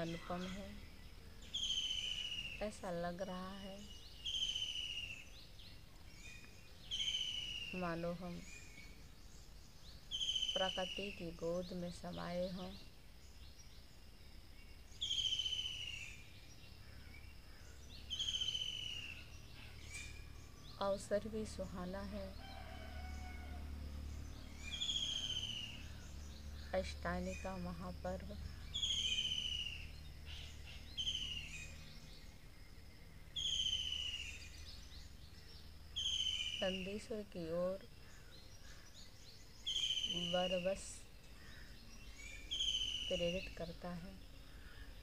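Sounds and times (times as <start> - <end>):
low outdoor hum: 0.0 - 45.0
bird trilled whistle call: 1.5 - 2.6, 4.2 - 5.3, 6.9 - 7.8, 10.1 - 11.1, 15.0 - 16.2, 18.1 - 19.3, 24.6 - 26.0, 28.7 - 31.8, 33.4 - 34.6, 36.0 - 36.9, 39.6 - 40.7, 42.2 - 43.4.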